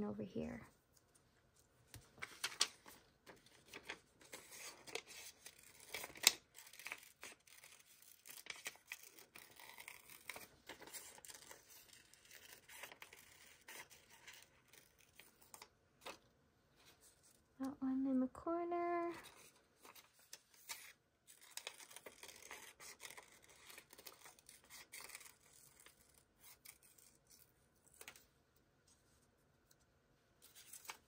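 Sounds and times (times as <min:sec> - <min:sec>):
paper crackling and rustling: 0:01.0 - 0:16.2, 0:19.1 - 0:28.3, 0:30.4 - 0:31.0
sharp paper snap: 0:02.2 - 0:11.6.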